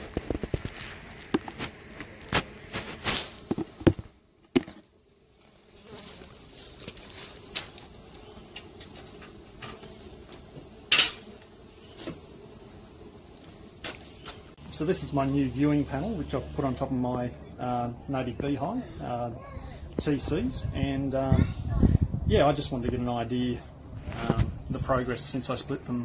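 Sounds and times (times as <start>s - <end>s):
bees buzzing: 14.6s - 26.0s.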